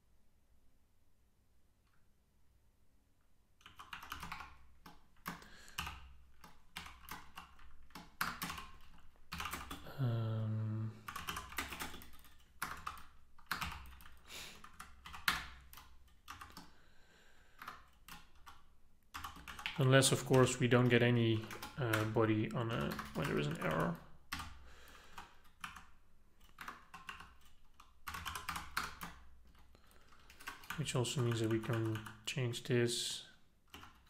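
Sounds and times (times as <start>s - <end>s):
typing on computer keyboard: 3.6s - 9.9s, 11.0s - 16.8s, 17.5s - 32.3s, 33.7s - 34.0s.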